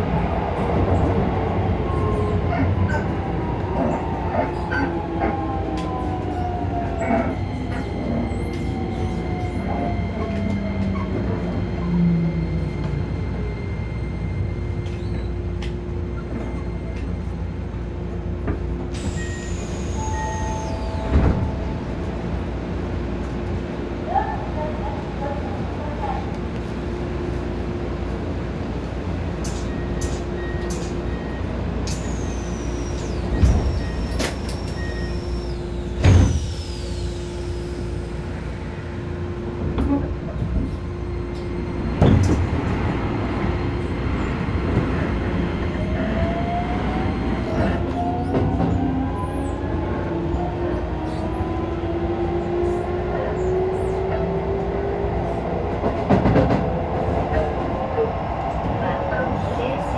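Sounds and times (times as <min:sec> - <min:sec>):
electric train hum: 0:00.0 - 0:59.9.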